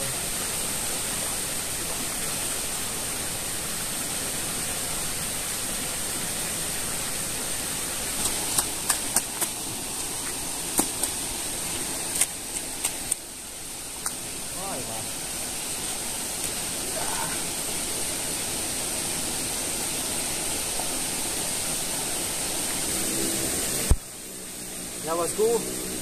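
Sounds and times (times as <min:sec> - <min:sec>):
water rushing over weir: 0:00.0 - 0:26.0
flip-flop footsteps on wet concrete: 0:10.2 - 0:11.2.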